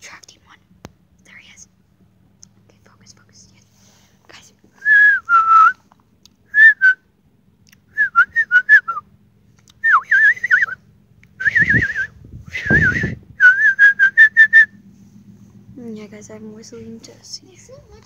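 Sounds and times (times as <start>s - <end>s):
person whistling: 4.8s - 5.8s, 6.5s - 7.0s, 7.9s - 9.0s, 9.8s - 10.8s, 11.4s - 14.7s.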